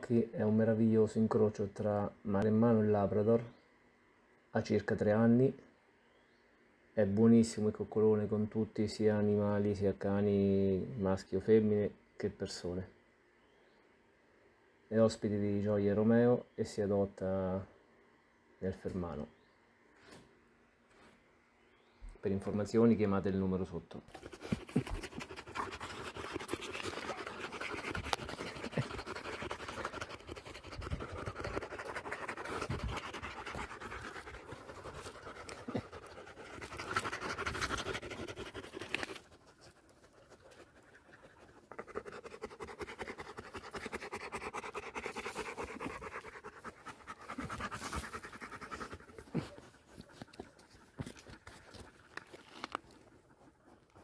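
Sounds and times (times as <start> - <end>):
dog panting: 24.1 - 54.0.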